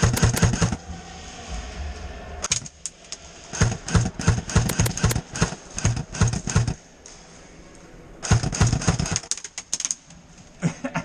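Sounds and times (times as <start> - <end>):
airsoft guns firing: 0.0 - 0.7, 3.6 - 6.8, 8.2 - 9.3.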